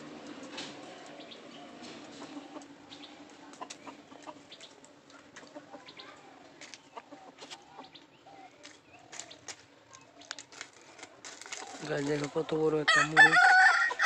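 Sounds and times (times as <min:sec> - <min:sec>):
rooster clucking: 0:01.8 - 0:08.0, 0:11.9 - 0:14.0
dry leaves rustling: 0:08.6 - 0:14.0.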